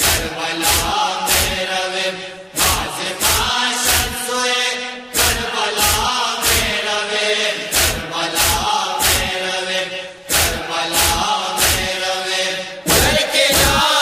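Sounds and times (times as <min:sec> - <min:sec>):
sharp slapping beat: 0:00.0 - 0:01.7, 0:02.6 - 0:04.2, 0:05.2 - 0:06.8, 0:07.7 - 0:09.4, 0:10.3 - 0:12.0, 0:12.9 - 0:14.0
voices singing a wailing chant: 0:00.0 - 0:14.0.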